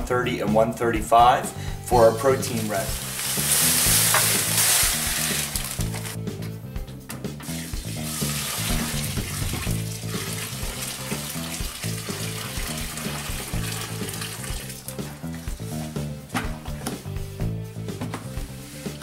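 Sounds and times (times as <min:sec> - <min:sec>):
background music: 0:00.0 - 0:19.0
hot water pouring onto malt: 0:02.6 - 0:06.2, 0:07.5 - 0:15.8.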